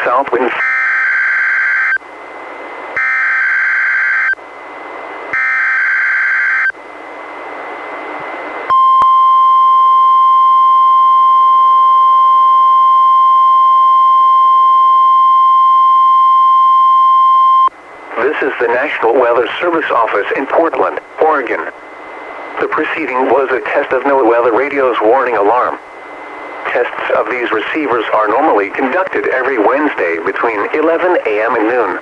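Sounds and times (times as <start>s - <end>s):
radio hiss: 0.0s - 0.6s, 17.8s - 32.0s
steady warning alarm tone: 0.5s - 2.0s, 3.0s - 4.4s, 5.3s - 6.8s.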